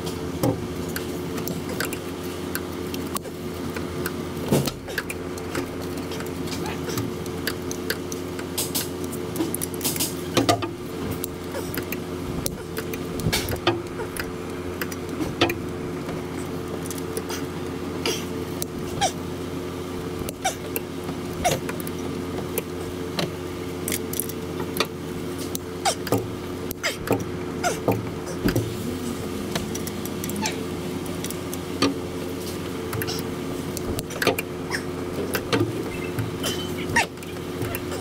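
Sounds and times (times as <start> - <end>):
steady low hum: 0.0 - 38.0
short squeaks: 35.8 - 38.0.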